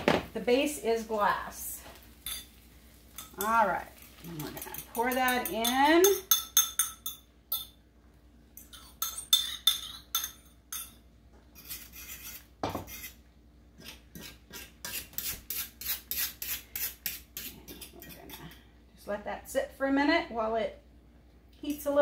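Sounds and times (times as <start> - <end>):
utensil scraping a skillet: 1.0 - 7.6, 11.5 - 18.6.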